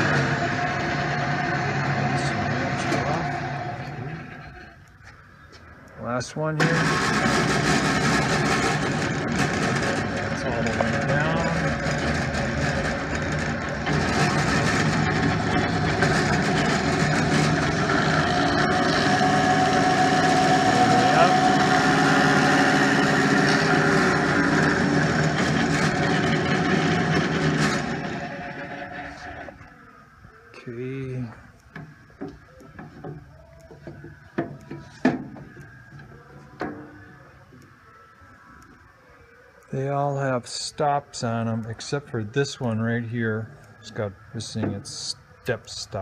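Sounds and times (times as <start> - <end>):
drill press motor hum and whine: 0.0 - 4.9, 6.6 - 30.5.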